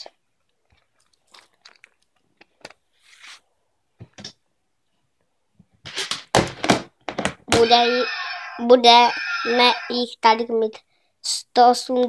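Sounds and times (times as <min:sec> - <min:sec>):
plastic toys knocking: 0:05.9 - 0:07.8.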